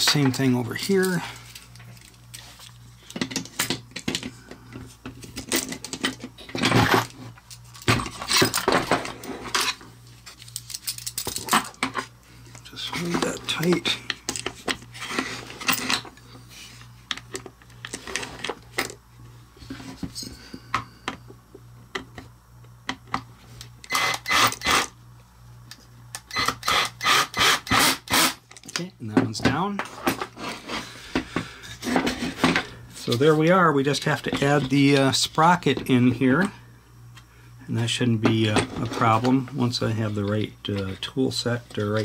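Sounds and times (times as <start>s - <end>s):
small screws clicking and clattering: 9.5s - 11.8s
power tool bursts: 23.9s - 24.9s, 26.3s - 28.4s.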